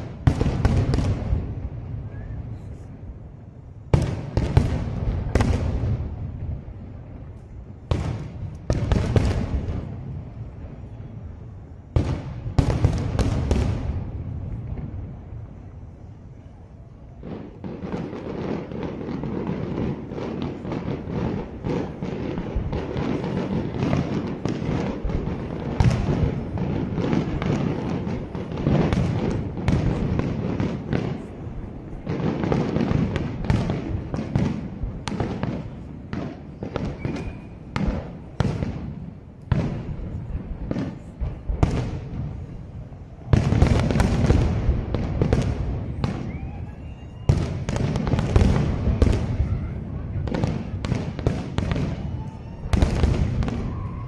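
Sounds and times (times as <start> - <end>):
fireworks bursting with sharp bangs: 0.0 - 54.0.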